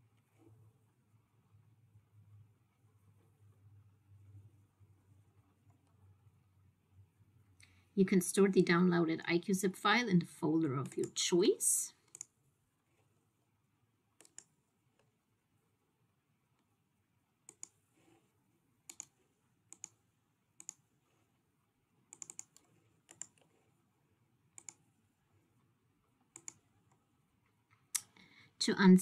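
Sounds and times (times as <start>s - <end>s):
computer mouse clicking: 12.0s - 12.4s, 14.2s - 15.1s, 17.4s - 20.0s, 20.6s - 20.9s, 22.1s - 23.8s, 24.5s - 25.0s, 26.2s - 27.1s.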